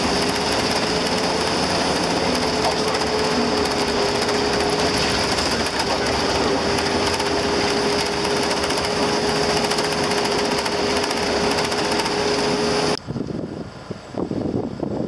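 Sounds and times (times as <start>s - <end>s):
fast rattle: 0.0s - 12.7s
steady whine: 0.0s - 13.0s
bus engine and road noise: 0.0s - 15.0s
wind on microphone: 0.0s - 15.0s.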